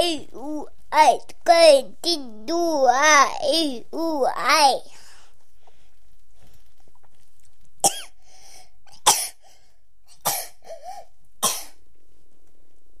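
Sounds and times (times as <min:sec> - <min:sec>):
toddler small voiced sounds: 0:00.0 - 0:04.9
toddler coughing: 0:07.8 - 0:08.1, 0:09.0 - 0:09.4, 0:10.2 - 0:11.8.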